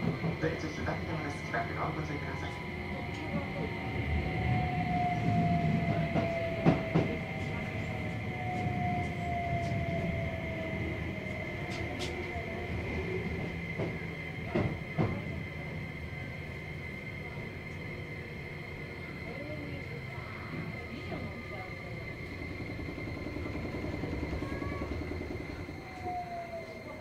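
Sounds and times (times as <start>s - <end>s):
wheels rumbling on rail: 0.0s - 27.0s
steady high tone: 19.2s - 27.0s
traction motor whine falling: 19.3s - 27.0s.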